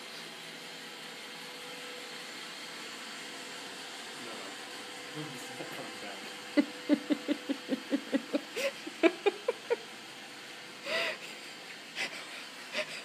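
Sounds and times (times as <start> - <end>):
robot vacuum humming: 0.0 - 13.0
person laughing breathily: 6.6 - 9.9, 10.8 - 13.0
wheezy intake of breath: 10.8 - 11.4.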